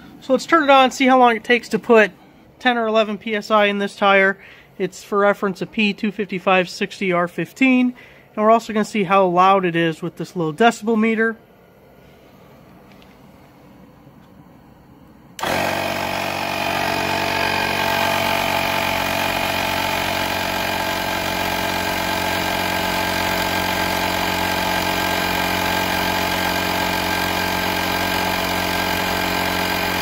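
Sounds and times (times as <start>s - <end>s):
tire inflator compressor droning: 15.4s - 30.0s.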